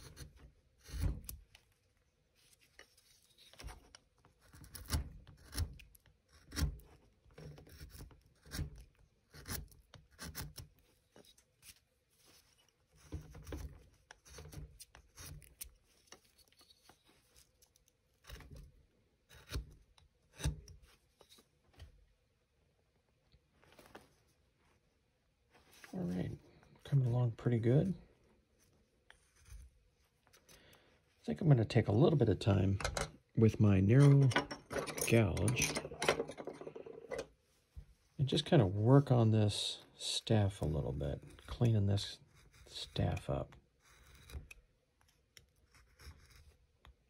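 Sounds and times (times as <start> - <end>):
carving tool slicing wood: 0.0 - 1.6, 3.6 - 11.8, 13.0 - 16.7, 17.4 - 20.8, 42.2 - 44.7, 45.3 - 47.0
soft knocks of wood carving: 3.6 - 11.4.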